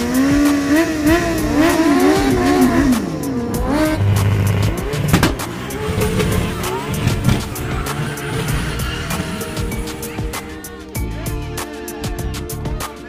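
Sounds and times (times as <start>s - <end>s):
car engine at high revs: 0.0s - 10.6s
motorbike engine revving: 0.0s - 10.9s
sharp crack: 2.9s - 9.7s.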